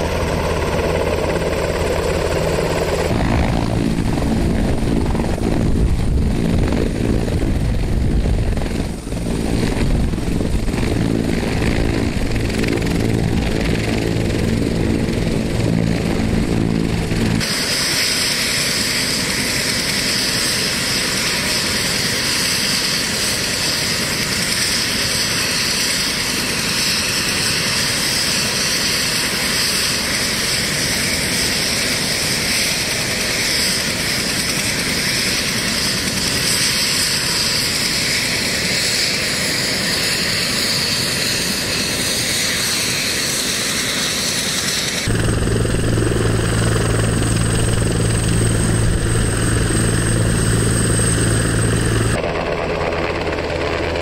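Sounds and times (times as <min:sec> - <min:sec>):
helicopter rotor beating: 0:00.0 - 0:54.0
high turbine whine: 0:00.0 - 0:54.0.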